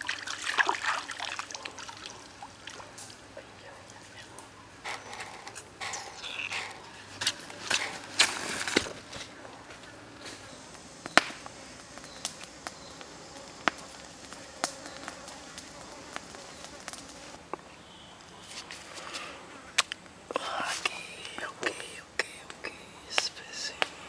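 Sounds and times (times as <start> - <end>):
rustling in dry leaves: 0.0 - 17.5, 18.3 - 19.5
sharp snaps: 10.7 - 17.6, 19.8 - 24.0.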